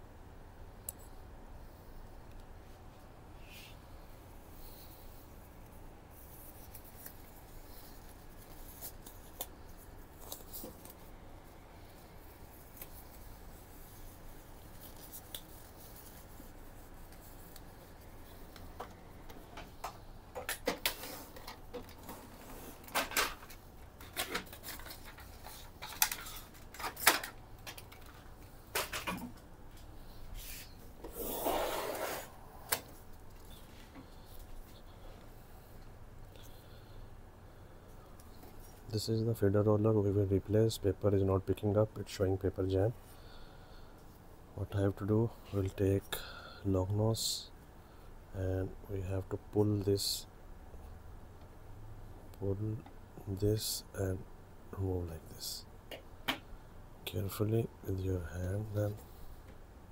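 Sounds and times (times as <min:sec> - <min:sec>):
plastic handling noises: 0:06.2 - 0:35.3
paper tray scraping slide: 0:30.4 - 0:32.4.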